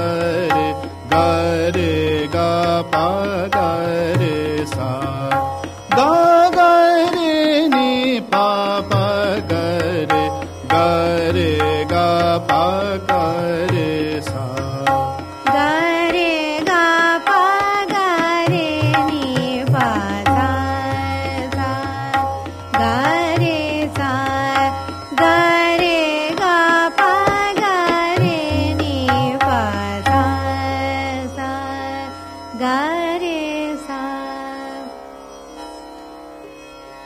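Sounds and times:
tabla: 0.0s - 34.9s
indian classical melody: 0.0s - 37.0s.

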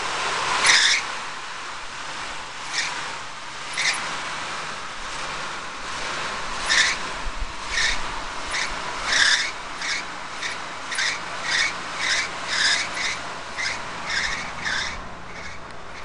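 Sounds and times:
rhythmic rasping scrapes: 5.1s - 16.0s.

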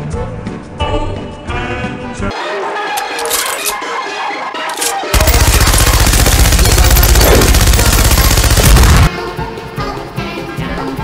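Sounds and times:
machine-gun burst: 5.1s - 9.1s.

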